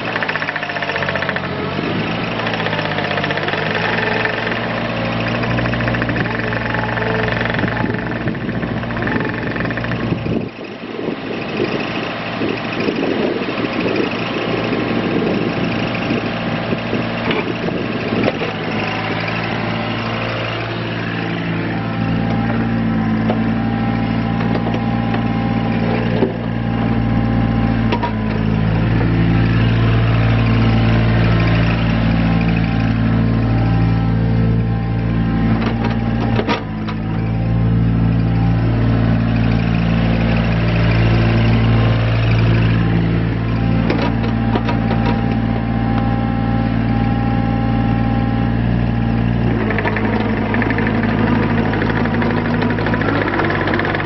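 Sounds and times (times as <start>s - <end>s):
excavator diesel engine running: 0.0s - 54.0s
machine knocks: 5.4s - 10.0s.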